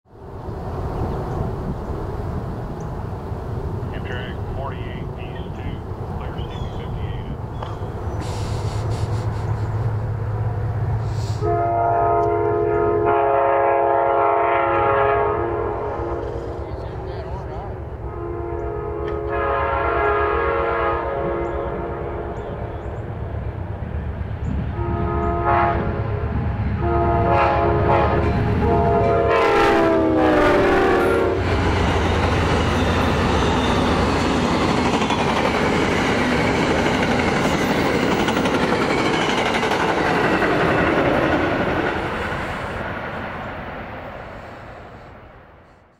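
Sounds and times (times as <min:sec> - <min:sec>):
low engine rumble: 0:00.7 - 0:11.9
train wheels on rails: 0:04.6 - 0:11.5, 0:30.2 - 0:45.0
locomotive air horn blasts: 0:11.2 - 0:16.4, 0:18.0 - 0:22.4, 0:24.8 - 0:31.5.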